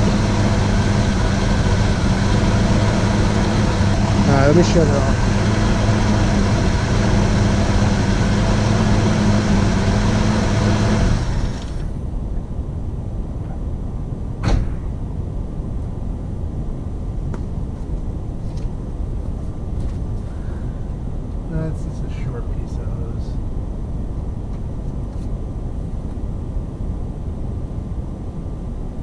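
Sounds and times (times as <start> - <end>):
car engine idling: 0.0 - 12.0
sharp knock: 14.4 - 14.9.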